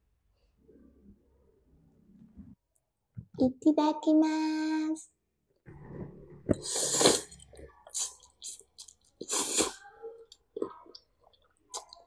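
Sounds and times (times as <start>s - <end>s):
slurping noodles: 5.8s - 12.0s
wet chewing: 6.5s - 12.0s.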